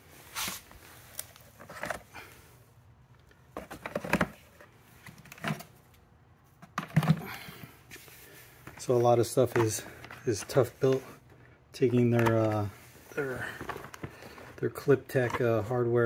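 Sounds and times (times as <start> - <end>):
tool pouches rustling: 0.0 - 2.5, 6.5 - 16.0.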